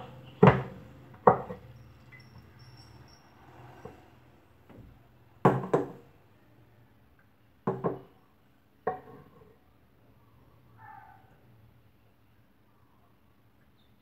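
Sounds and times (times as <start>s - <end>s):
metal utensils knocking on counter: 7.7s - 8.1s.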